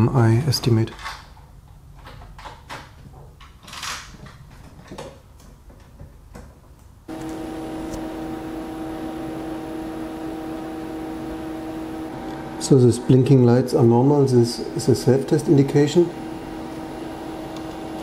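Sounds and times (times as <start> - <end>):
cables and connectors clicking: 2.0 - 8.1, 17.4 - 18.0
computer cooling fans whirring: 7.0 - 18.0.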